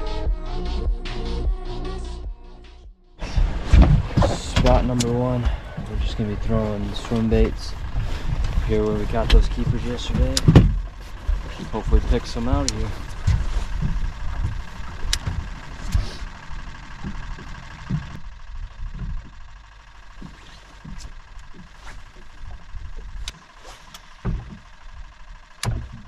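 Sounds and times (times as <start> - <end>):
electric trolling motor whine: 3.2 - 26.0
wind buffeting microphone: 3.3 - 19.4
sharp clicks: 7.0 - 24.8.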